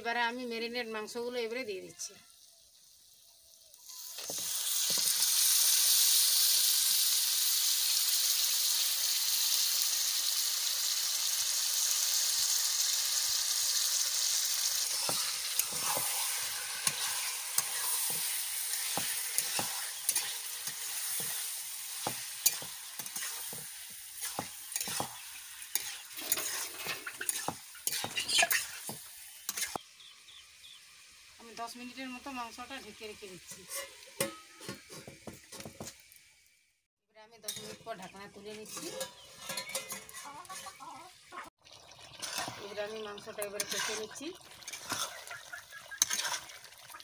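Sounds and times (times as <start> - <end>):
chicken sizzling in hot oil: 0.0 - 36.9, 37.5 - 47.0
spatula scraping a wok: 14.6 - 29.8, 33.4 - 36.0, 37.4 - 40.9, 42.2 - 42.6, 43.4 - 45.3, 45.9 - 46.7.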